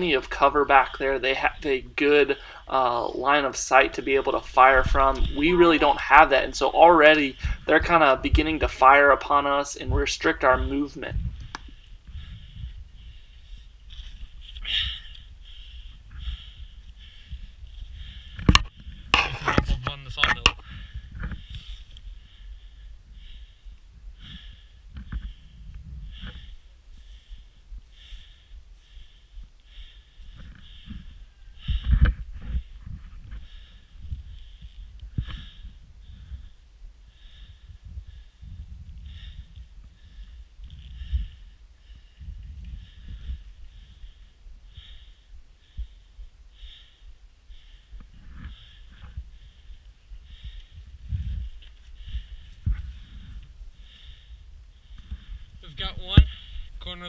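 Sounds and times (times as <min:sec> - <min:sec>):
person breathing hard: 0:02.3 - 0:02.8, 0:07.3 - 0:07.7, 0:11.2 - 0:19.5, 0:20.4 - 0:56.8
movement bumps and knocks: 0:18.4 - 0:20.6.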